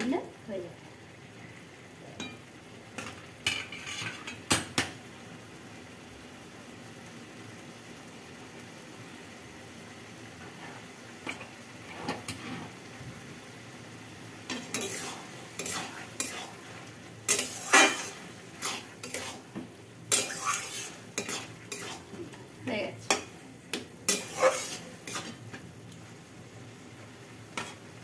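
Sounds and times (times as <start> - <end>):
low hiss from pan: 0.0 - 28.0
metal spatula scraping a pan: 3.4 - 4.4, 10.4 - 12.9, 14.5 - 22.4, 23.1 - 25.5, 27.5 - 27.9.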